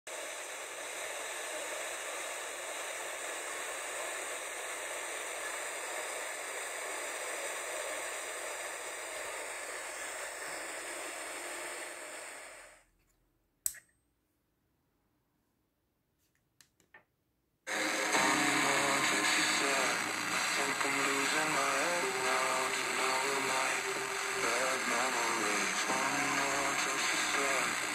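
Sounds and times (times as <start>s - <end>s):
radio static hiss: 0.1s - 12.8s, 17.7s - 27.9s
sharp click: 13.6s - 14.0s.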